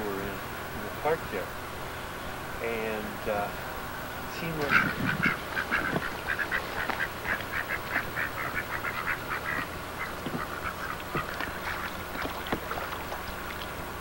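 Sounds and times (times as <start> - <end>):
ducks quacking: 4.3 - 13.8.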